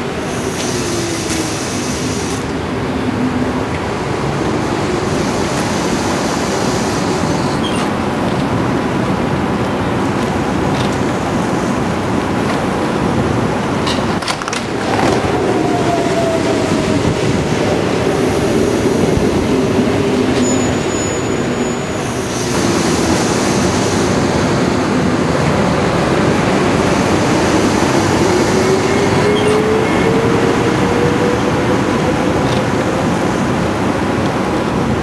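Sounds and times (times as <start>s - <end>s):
train wheels rumbling: 0.0s - 35.0s
brief high squeal: 20.4s - 21.9s.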